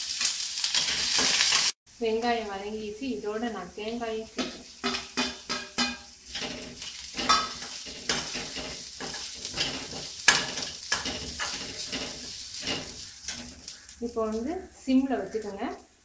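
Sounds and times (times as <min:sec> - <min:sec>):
food sizzling in oil: 0:00.0 - 0:16.0
metal spatula scraping pan: 0:04.4 - 0:14.3.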